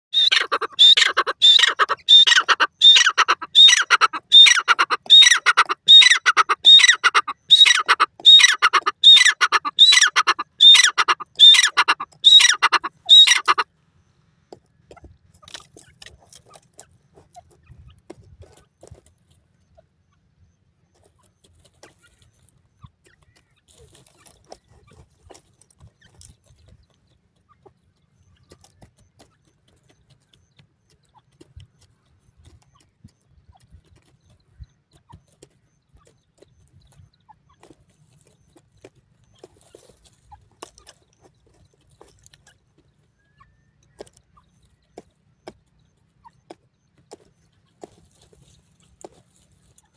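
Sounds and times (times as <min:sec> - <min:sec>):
bird harsh calls: 0:00.1 - 0:13.7
faint ticks and rustles: 0:13.6 - 0:49.9.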